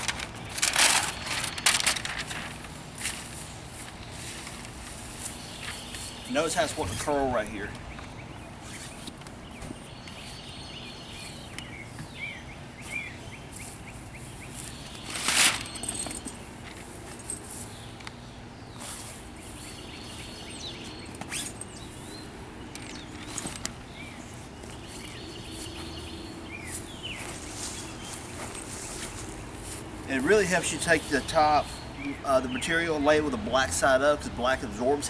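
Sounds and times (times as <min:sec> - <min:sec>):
vinyl window panel crinkling: 0:00.0 - 0:03.4
birds chirping: 0:00.0 - 0:35.0.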